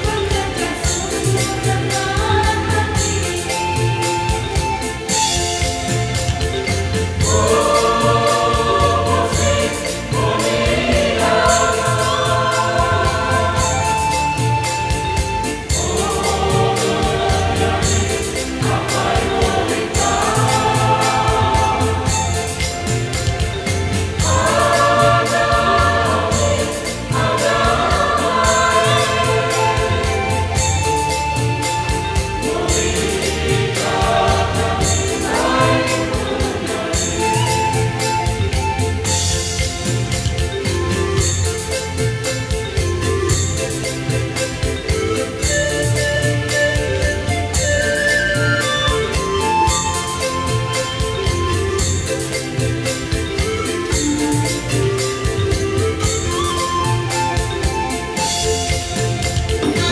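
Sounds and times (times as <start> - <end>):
mixed choir singing: 0.0 - 5.8, 7.1 - 39.4
rhythmic instrumental backing: 0.0 - 59.9.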